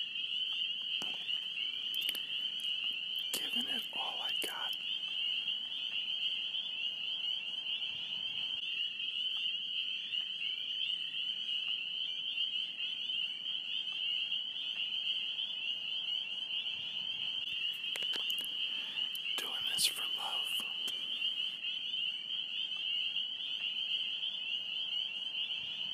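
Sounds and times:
frog chorus trilling: 0.0 - 25.9.

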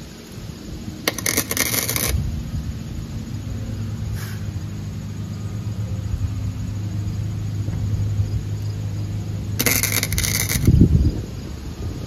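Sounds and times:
steady low hum: 0.0 - 12.0
welding arc crackling: 1.0 - 2.3, 9.6 - 10.8.

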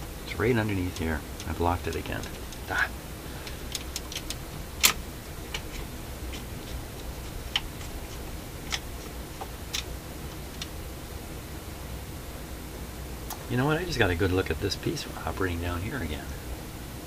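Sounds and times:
low hum: 0.0 - 17.0
turntable mechanism clicking: 0.6 - 2.7, 3.4 - 10.8.

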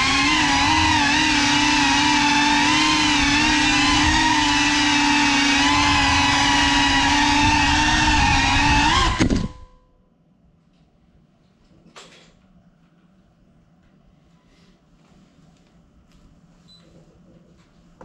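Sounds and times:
drone motors whining: 0.0 - 9.8.

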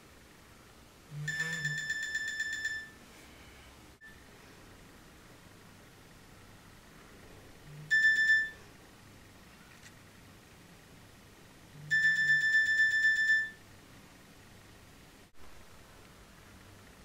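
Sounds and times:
phone alarm beeping: 1.1 - 4.2, 7.9 - 8.6, 11.9 - 13.6.

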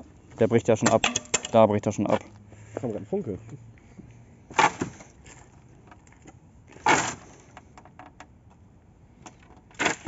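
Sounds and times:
boards clicking and knocking: 0.8 - 1.6
wooden pallets cracking: 0.8 - 1.6, 4.5 - 7.6, 9.3 - 10.0.

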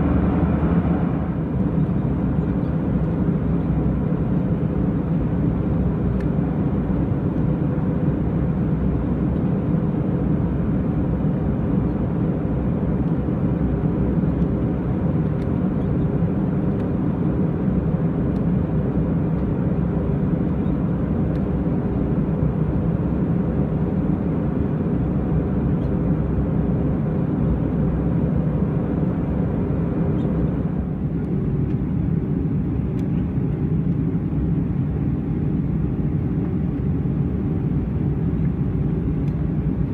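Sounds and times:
aircraft cabin rumble: 0.0 - 39.9
faint steady hum: 0.0 - 39.9.

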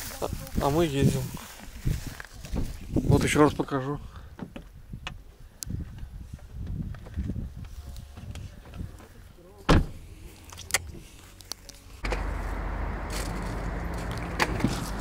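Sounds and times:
car engine humming: 11.7 - 15.0.

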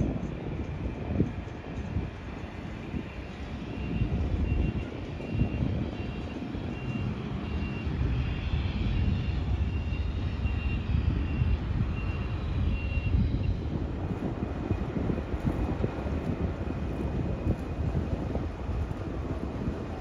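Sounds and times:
continuous low rumble: 0.0 - 20.0
reversing alarm beeping: 3.2 - 13.6.

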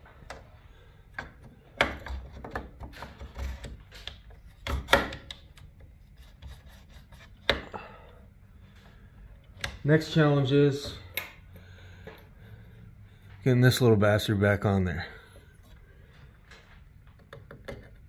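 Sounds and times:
plastic parts scraping and knocking: 1.1 - 7.8.

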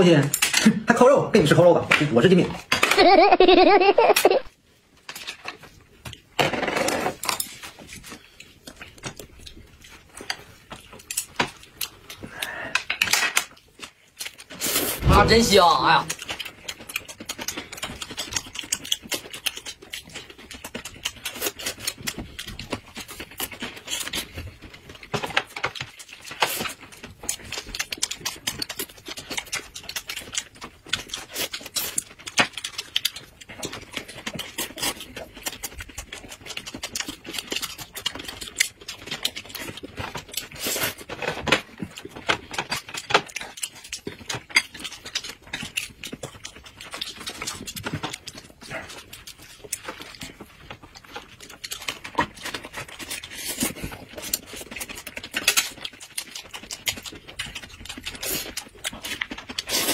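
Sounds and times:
people chewing and lip smacking: 4.1 - 59.9
crisp crunching: 13.7 - 59.9.

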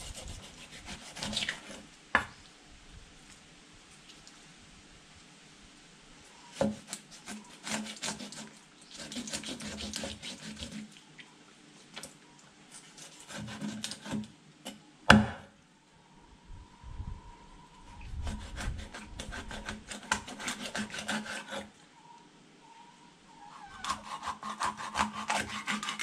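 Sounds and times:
loud chop onto wood: 15.1 - 15.5.

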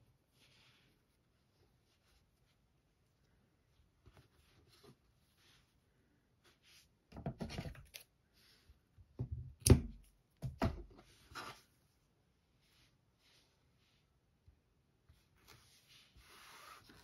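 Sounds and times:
yarn rustling and scraping: 15.3 - 17.0.

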